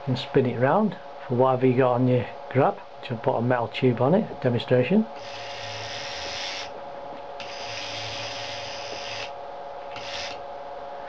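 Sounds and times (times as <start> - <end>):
steady hum: 0.0 - 11.0
small electric motor whirring: 5.2 - 6.8, 7.4 - 10.4.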